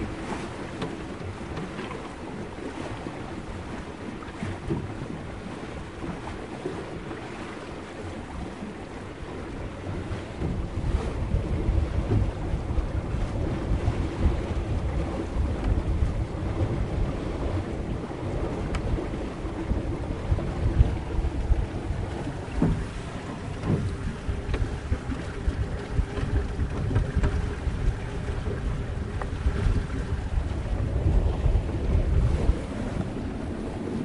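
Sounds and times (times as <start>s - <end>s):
water splashing against hull: 0.0s - 34.0s
wind blowing: 8.0s - 34.0s.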